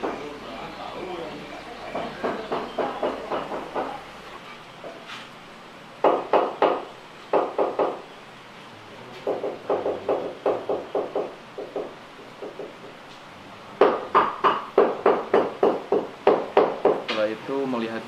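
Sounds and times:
hammer knocking: 0.0s - 0.3s, 1.9s - 4.0s, 6.0s - 8.0s, 9.2s - 13.0s, 13.8s - 17.2s.

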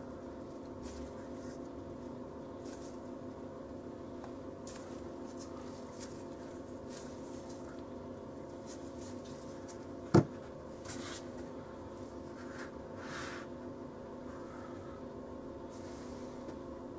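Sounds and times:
steady low hum: 0.0s - 16.9s
gloved hands rubbing and rustling: 0.4s - 3.4s, 4.2s - 10.0s.

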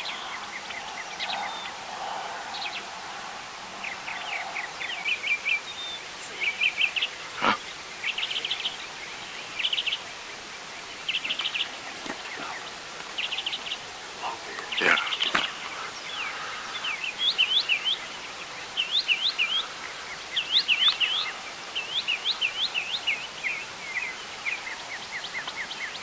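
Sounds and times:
birds chirping: 0.0s - 26.0s.

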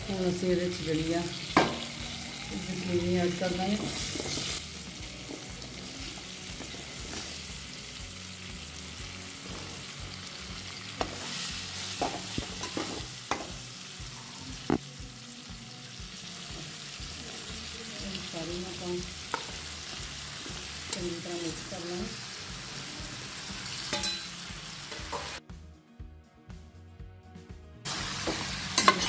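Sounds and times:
masala sizzling in a pan: 0.0s - 25.4s, 27.9s - 29.0s.

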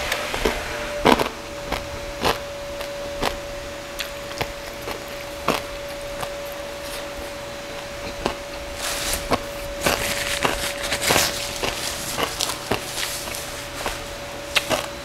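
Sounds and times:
chewing with wet mouth smacks: 1.1s - 15.0s
paper napkin rustling: 8.0s - 15.0s.

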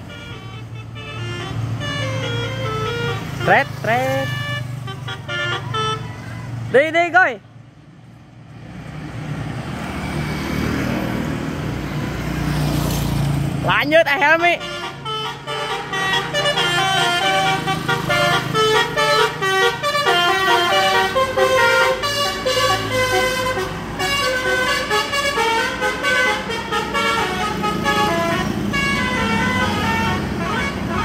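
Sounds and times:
multi-tone air horn melody: 0.0s - 6.2s, 14.5s - 31.0s
bus engine running: 0.0s - 6.7s, 14.7s - 31.0s.

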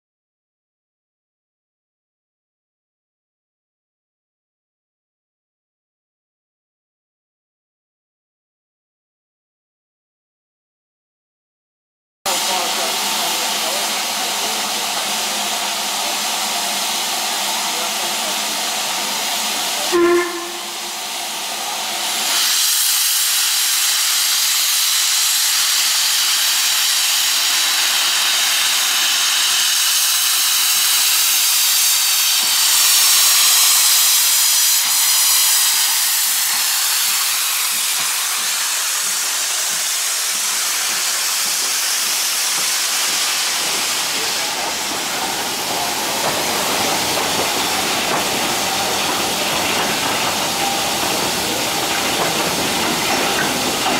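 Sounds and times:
steam locomotive hissing: 12.3s - 53.9s.

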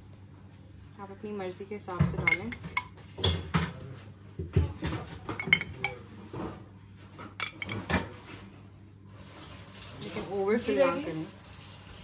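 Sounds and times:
spoon clinking against dish: 2.2s - 3.5s, 5.3s - 6.0s, 7.4s - 7.9s.

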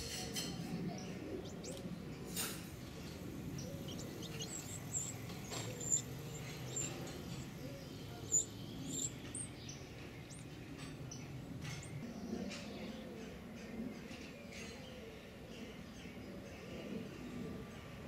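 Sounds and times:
nestlings chirping: 0.7s - 12.0s.

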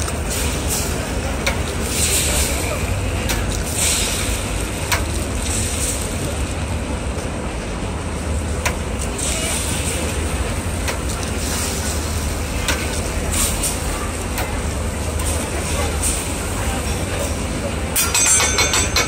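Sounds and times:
eggs sizzling on a griddle: 0.0s - 6.8s, 8.4s - 13.8s.

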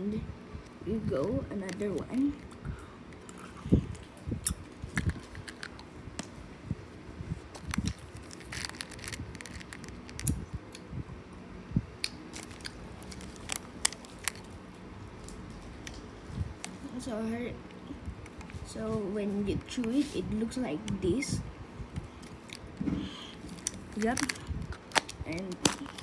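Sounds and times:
person chewing candy: 2.5s - 5.9s, 7.6s - 10.8s.

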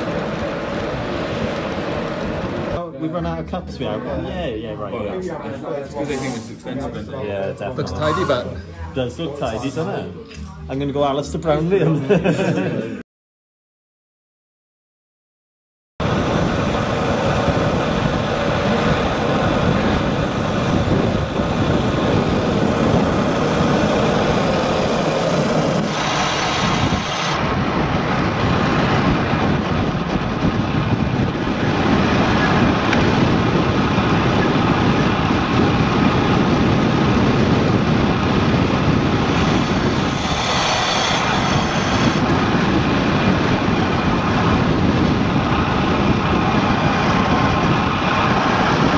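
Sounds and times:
wind rushing over microphone: 0.0s - 10.2s, 16.0s - 48.9s.

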